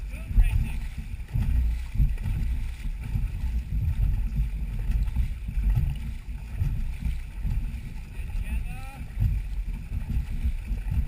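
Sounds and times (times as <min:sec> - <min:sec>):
water and hull rumbling: 0:00.0 - 0:11.0
wind buffeting the microphone: 0:00.0 - 0:11.0.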